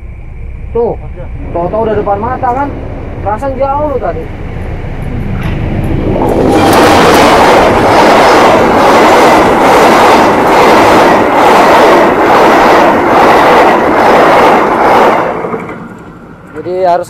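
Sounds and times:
train passing on tracks: 0.0 - 17.0
train wheels clattering: 0.0 - 17.0.

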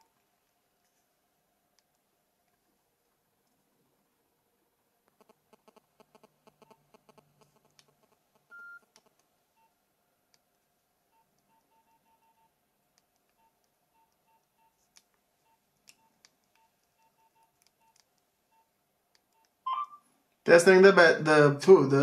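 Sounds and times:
mobile phone keypad beep: 8.5 - 8.8, 15.4 - 18.6, 19.4 - 20.0.

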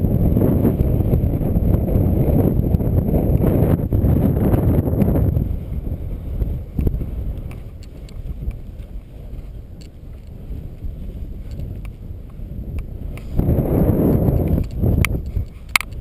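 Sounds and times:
dirt bike engine rumble: 0.0 - 16.0
wind buffeting microphone: 0.0 - 16.0
small clicks and rattles: 6.8 - 8.6, 11.4 - 12.0, 14.1 - 16.0.

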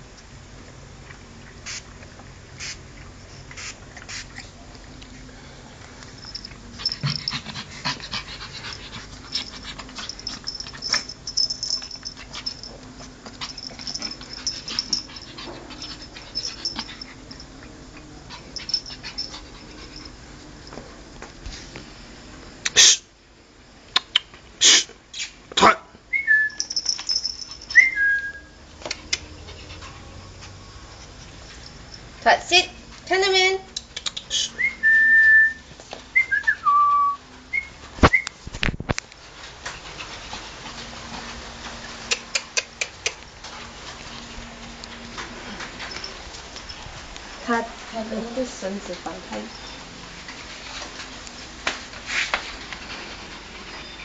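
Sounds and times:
puppy making small noises: 33.7 - 34.6, 41.9 - 43.3.

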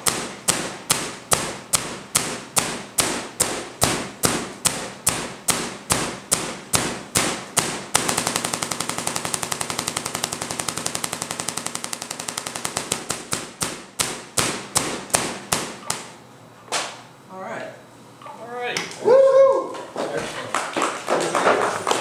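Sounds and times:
tesla coil arcs cracking: 0.0 - 16.2.

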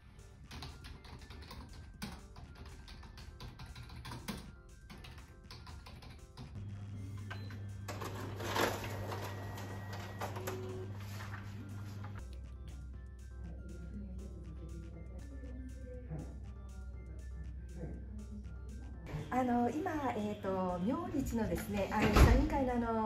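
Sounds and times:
typing on computer keyboard: 0.4 - 6.6
copier machine humming: 6.6 - 12.2.

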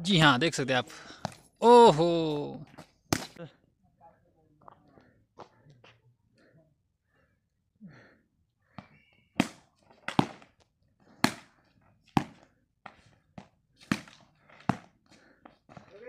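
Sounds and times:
cricket bat striking ball: 9.4 - 10.5, 12.1 - 12.4.

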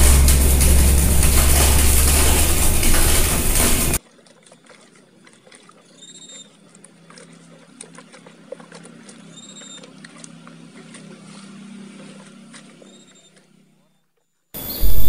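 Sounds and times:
low steady hum: 0.0 - 4.0.

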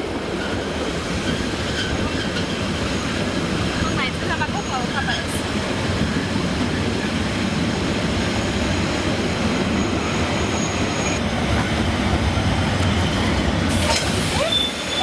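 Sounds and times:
train wheels rumbling on rail: 0.0 - 15.0
high wheel squeal: 9.6 - 11.2, 13.8 - 15.0.

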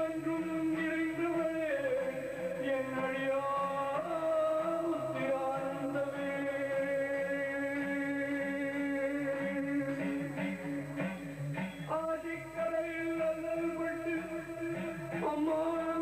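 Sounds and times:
devotional chanting: 0.0 - 16.0.

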